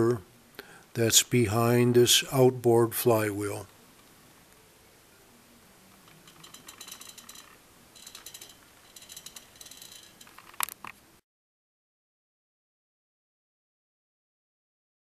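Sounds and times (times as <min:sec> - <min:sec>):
turntable rattling and clicking: 0:06.0 - 0:10.9.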